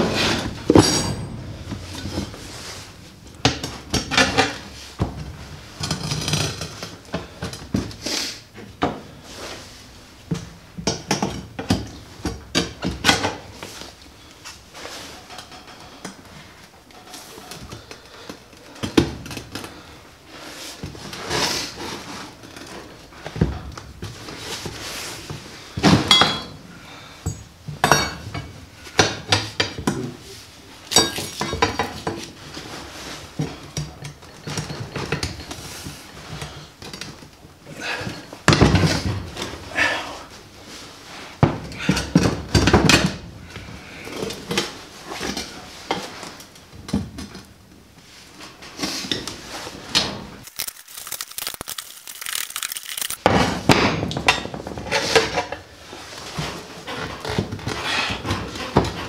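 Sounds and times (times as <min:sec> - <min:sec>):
metal clanks and knocks: 0:00.0 - 0:06.9.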